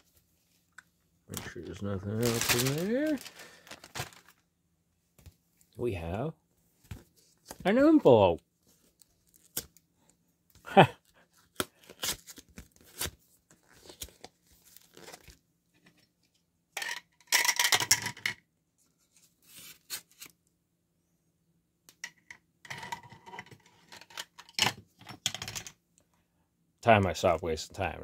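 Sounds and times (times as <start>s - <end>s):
paper envelope rustling: 1.3s - 4.4s, 11.8s - 15.4s
paper tearing: 2.2s - 4.2s.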